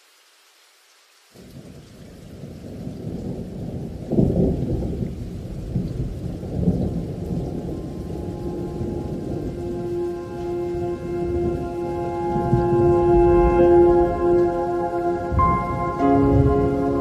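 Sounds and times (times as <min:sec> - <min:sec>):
rain hiss: 0:00.0 - 0:17.0
thunder rumbling: 0:02.3 - 0:17.0
held musical tones: 0:07.8 - 0:17.0.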